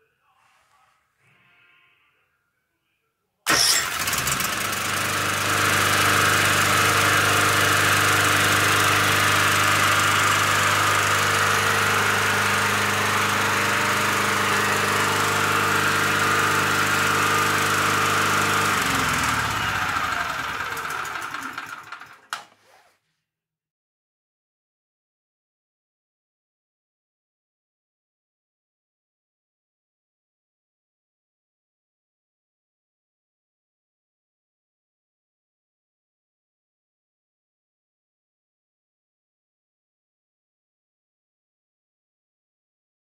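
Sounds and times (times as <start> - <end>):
generator engine running: 3.5 - 22.3
electric starter motor cranking: 3.5 - 22.6.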